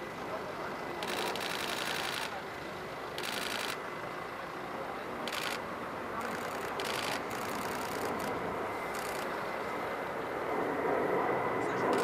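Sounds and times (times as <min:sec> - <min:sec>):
rapid camera shutter clicks: 0:01.0 - 0:02.4, 0:03.2 - 0:03.8, 0:05.2 - 0:05.6, 0:06.2 - 0:09.4
jet airliner flying past: 0:03.8 - 0:12.0.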